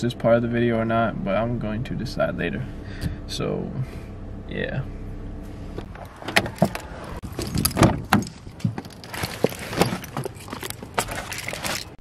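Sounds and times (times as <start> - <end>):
handling knocks: 5.8 - 12.0
car keys jangling: 5.9 - 12.0.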